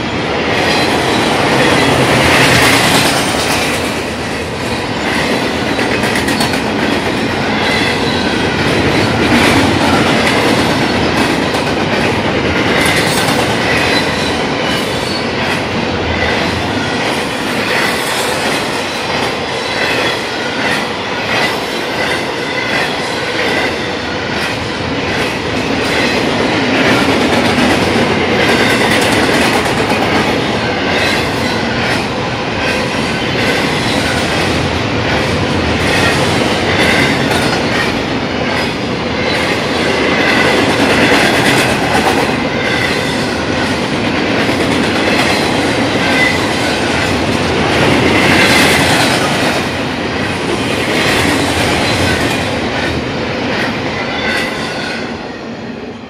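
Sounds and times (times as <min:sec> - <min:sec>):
freight train wheels roaring: 0:00.0 - 0:56.0.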